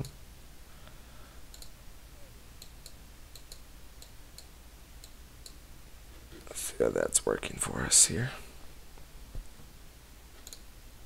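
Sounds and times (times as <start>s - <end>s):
steady low hum: 0.0s - 11.0s
computer mouse clicking: 1.5s - 1.8s, 2.6s - 5.6s, 10.4s - 10.7s.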